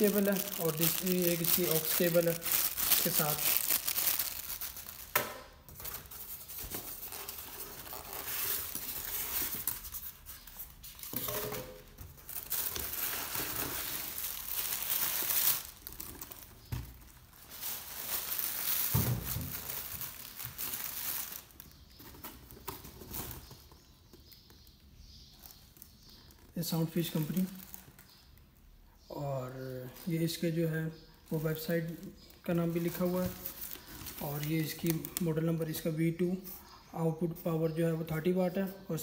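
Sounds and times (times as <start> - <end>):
plastic packaging crinkling: 0.0 - 23.8, 25.4 - 28.4, 32.5 - 35.8.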